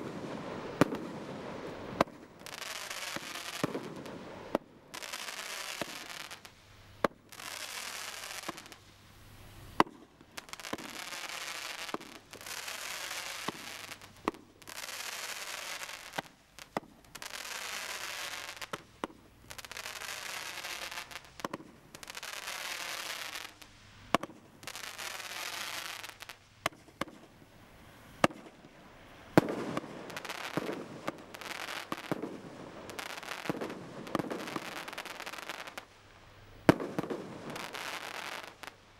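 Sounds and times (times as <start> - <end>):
firework bangs: 0.0 - 8.8, 9.7 - 36.0, 36.6 - 38.8
firework hissing: 0.0 - 38.9.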